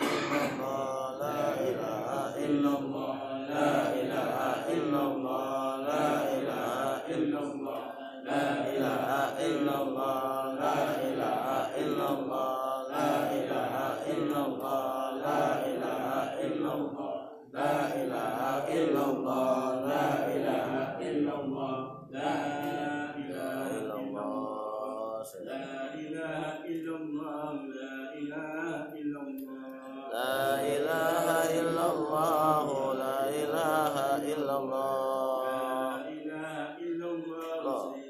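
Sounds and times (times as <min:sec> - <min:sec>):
man chanting into a microphone: 0:00.0 - 0:38.0.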